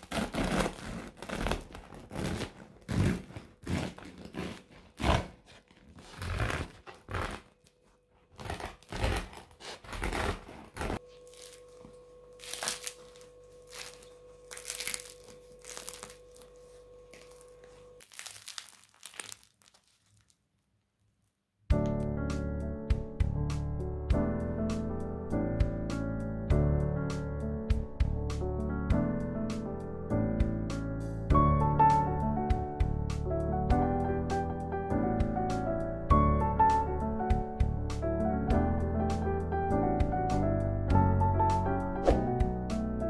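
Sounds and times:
bread knife sawing crusty loaf: 0:00.0 - 0:07.5, 0:08.3 - 0:11.0
bread crust crackling: 0:00.0 - 0:07.6, 0:08.3 - 0:11.8, 0:12.4 - 0:20.5.

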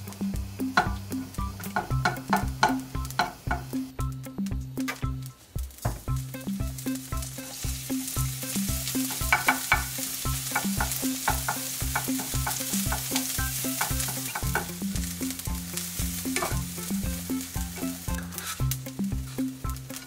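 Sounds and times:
food sizzling in oil: 0:00.0 - 0:20.0
wooden spatula scraping pan: 0:17.8 - 0:20.0.

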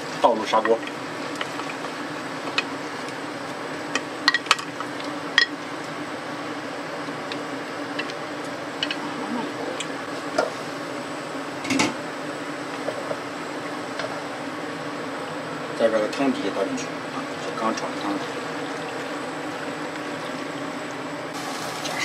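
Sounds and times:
steady low hum: 0:00.0 - 0:21.4.

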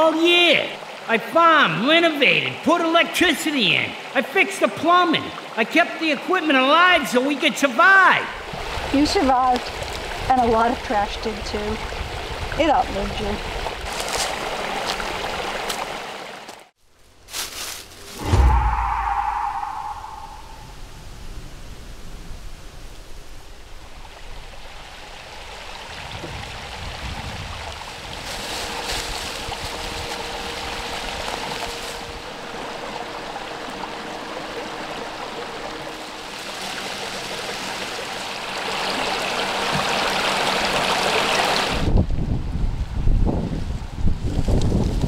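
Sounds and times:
brook running: 0:00.0 - 0:16.7, 0:23.5 - 0:41.9
wind buffeting microphone: 0:08.4 - 0:14.0, 0:18.1 - 0:25.3, 0:25.9 - 0:32.6, 0:41.7 - 0:45.0.

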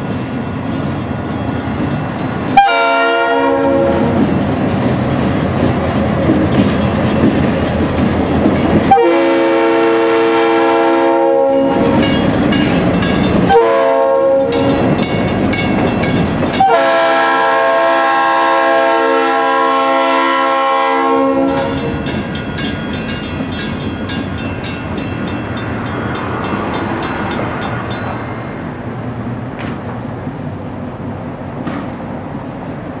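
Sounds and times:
crossing bell ringing: 0:00.0 - 0:17.6, 0:20.9 - 0:28.8
locomotive horn blast: 0:02.6 - 0:04.2, 0:08.9 - 0:12.0, 0:13.5 - 0:14.8, 0:16.5 - 0:22.0.

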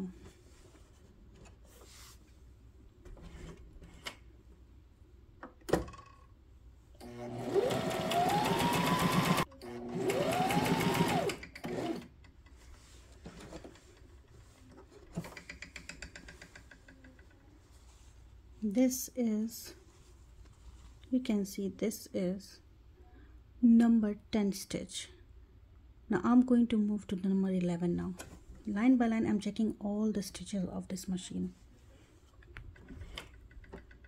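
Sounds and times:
sewing machine motor whine: 0:07.0 - 0:12.0.

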